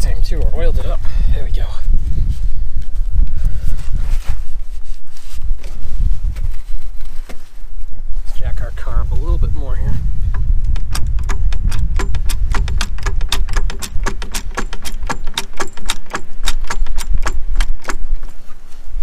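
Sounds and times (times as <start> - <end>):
floor jack clicking and clanking: 10.4 - 18.3.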